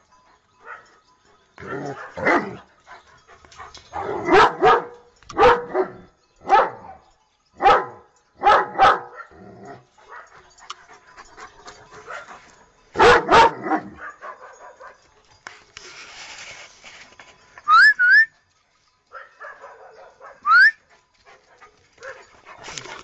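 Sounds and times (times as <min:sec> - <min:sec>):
dog barking: 0:01.7 - 0:02.6, 0:04.0 - 0:07.0, 0:07.6 - 0:09.4, 0:13.0 - 0:15.0, 0:19.1 - 0:20.6.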